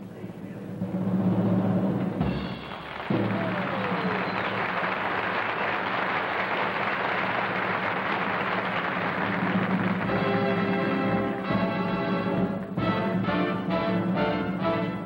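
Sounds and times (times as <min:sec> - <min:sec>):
audience applauding: 0:02.2 - 0:11.5.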